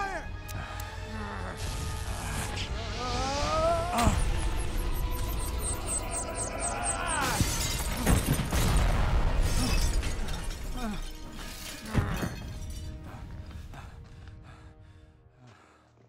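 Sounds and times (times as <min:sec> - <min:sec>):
background music: 0:00.0 - 0:16.0
glass shattering: 0:07.0 - 0:12.9.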